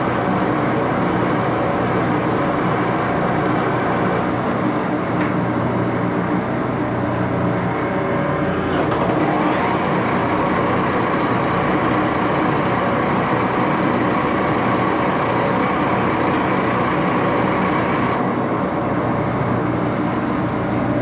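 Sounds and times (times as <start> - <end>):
lathe running: 7.5 - 19.2.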